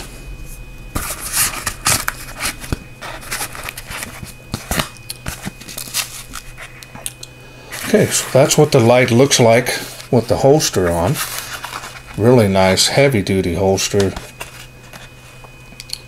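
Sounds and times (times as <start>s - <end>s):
nylon holster rustling and scraping: 1.0s - 6.8s, 9.8s - 12.2s.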